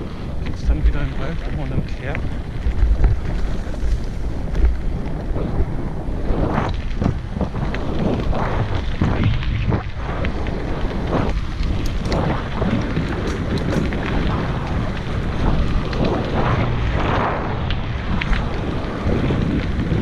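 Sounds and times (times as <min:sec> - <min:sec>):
wind buffeting microphone: 0:00.0 - 0:20.0
small clicks: 0:11.2 - 0:16.2.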